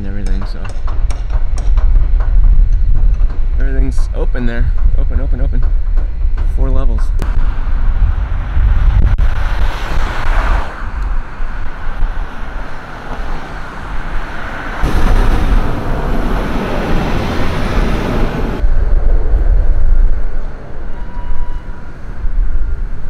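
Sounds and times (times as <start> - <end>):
cars driving past: 7.2 - 18.7.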